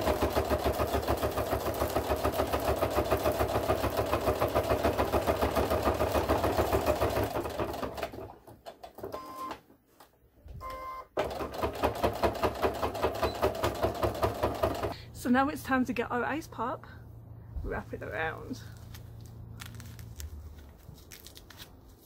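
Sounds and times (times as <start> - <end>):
sewing machine stitching: 0.0 - 9.1, 11.2 - 15.0.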